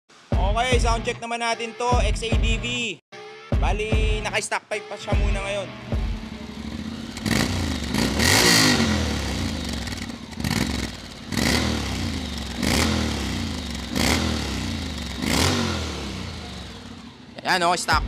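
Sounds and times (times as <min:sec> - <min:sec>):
motorcycle engine revving: 0:05.8 - 0:18.0.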